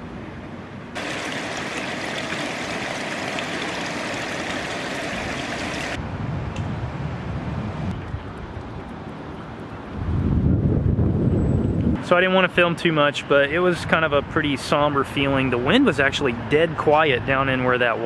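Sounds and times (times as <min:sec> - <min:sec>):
water rushing over pool rim: 0:01.0 - 0:06.0
wind rumble on microphone: 0:05.1 - 0:12.0.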